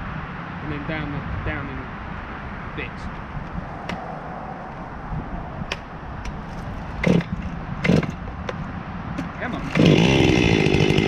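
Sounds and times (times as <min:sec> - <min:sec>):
chainsaw idling: 0:07.0 - 0:08.2, 0:09.6 - 0:11.0.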